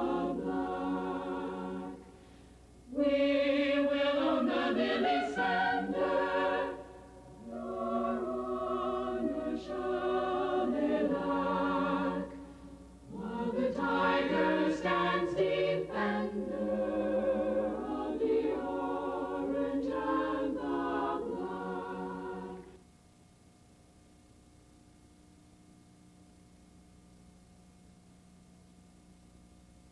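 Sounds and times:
choir singing: 0.0 - 2.1, 2.9 - 22.8
faint hiss: 0.0 - 29.9.

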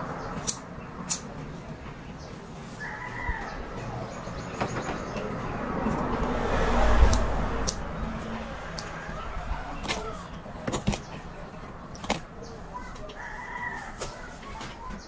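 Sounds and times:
scissors snipping hair: 7.0 - 9.0.

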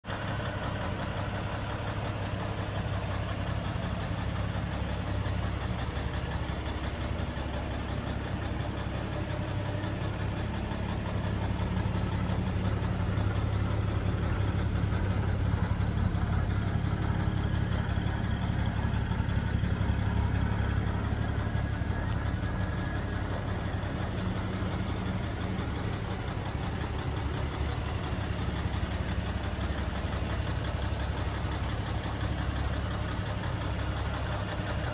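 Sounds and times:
pickup truck engine idling: 0.0 - 34.9.

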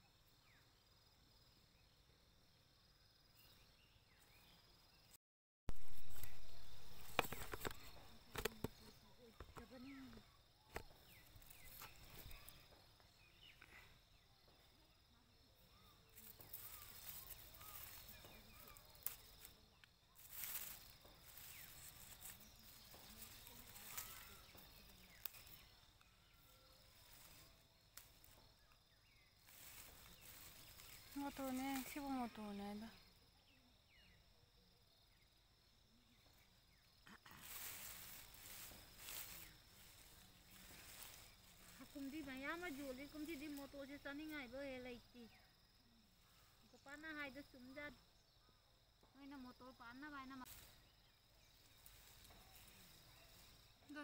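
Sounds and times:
pea vines snapping and rustling: 5.7 - 8.9, 16.2 - 25.8, 29.5 - 32.1, 37.3 - 43.6.

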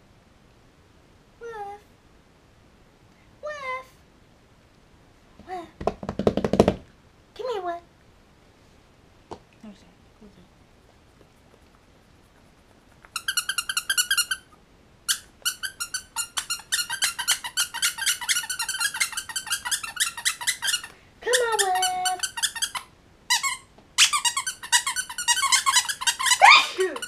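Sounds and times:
squeaky toy squeaking: 13.1 - 27.0.

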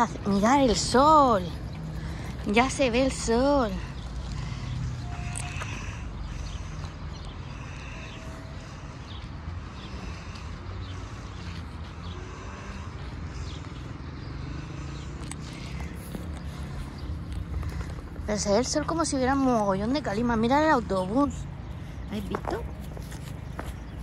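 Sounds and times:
distant road traffic rumble: 0.0 - 24.0.

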